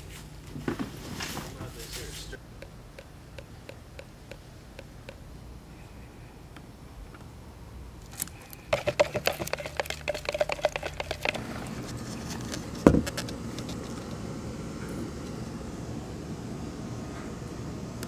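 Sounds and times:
stir stick scraping plastic cup: 8.1s - 14.2s.

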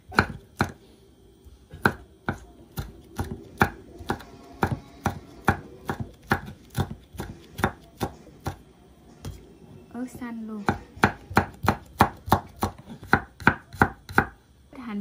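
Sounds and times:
knife chopping on wooden board: 0.1s - 0.8s, 1.8s - 8.6s, 10.7s - 14.4s.

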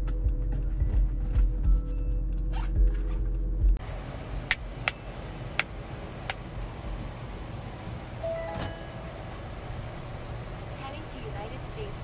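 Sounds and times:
car cabin hum: 3.7s - 12.0s.

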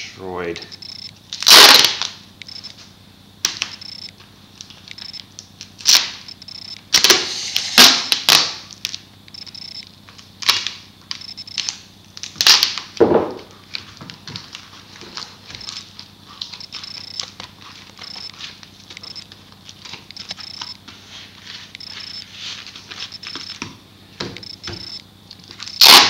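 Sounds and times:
duct tape ripping off roll: 1.3s - 2.2s, 6.9s - 9.0s, 11.6s - 13.0s, 25.7s - 26.0s.

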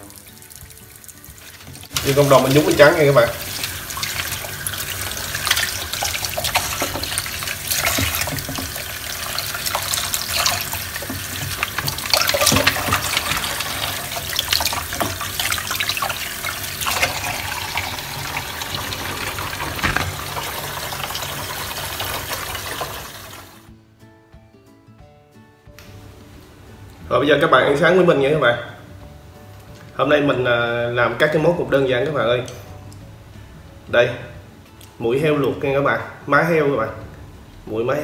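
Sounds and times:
water splashing: 0.0s - 23.6s
water running from a tap: 0.0s - 23.7s.

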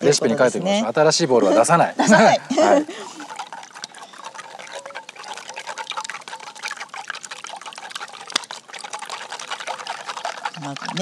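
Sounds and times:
egg sloshing: 1.6s - 11.0s
chopsticks ticking against metal bowl: 3.2s - 11.0s.

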